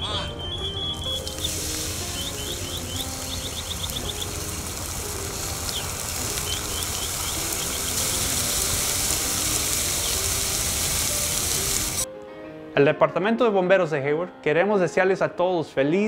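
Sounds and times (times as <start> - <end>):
oil catching fire: 1.0 - 12.0
hot oil sizzling and spattering: 1.0 - 12.1.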